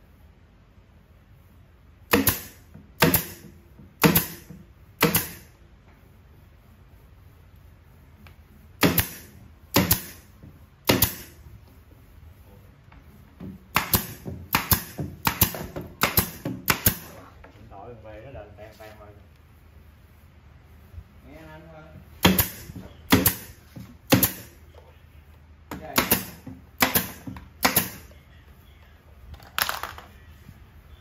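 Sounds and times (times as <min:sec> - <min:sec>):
hammering nails into wood: 0:02.1 - 0:05.5, 0:08.8 - 0:11.4, 0:13.4 - 0:17.2, 0:22.2 - 0:24.5, 0:25.7 - 0:28.1.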